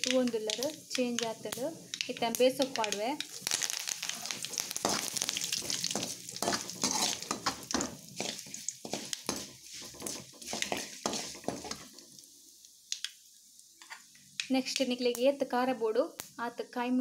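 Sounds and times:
leaves sizzling in hot oil: 0:00.0 - 0:16.4
steel spoon scraping a pan: 0:03.5 - 0:12.0.

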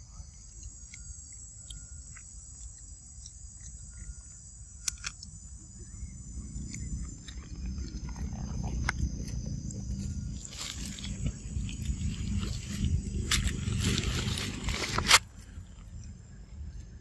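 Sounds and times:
insects droning: 0:00.0 - 0:17.0
low rumble: 0:05.3 - 0:17.0
monkey biting into leaf: 0:10.0 - 0:15.3.

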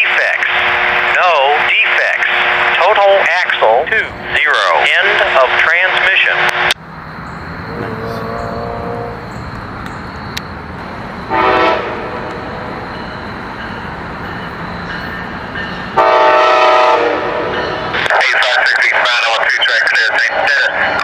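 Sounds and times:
passing train rumble: 0:00.0 - 0:21.0
train horn blasts: 0:07.8 - 0:09.3, 0:11.3 - 0:12.2, 0:16.0 - 0:17.8.

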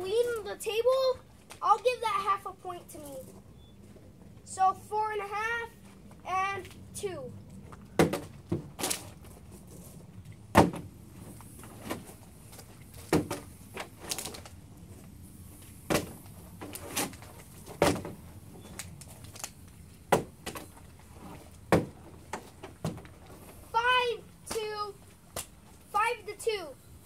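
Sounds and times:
plastic bottles thudding on a table: 0:08.0 - 0:09.0, 0:10.5 - 0:10.9, 0:21.7 - 0:22.0.

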